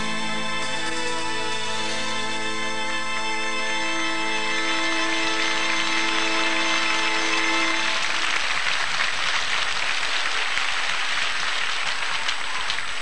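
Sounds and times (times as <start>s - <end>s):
held musical chord: 0.0s - 8.3s
audience applause: 0.0s - 13.0s.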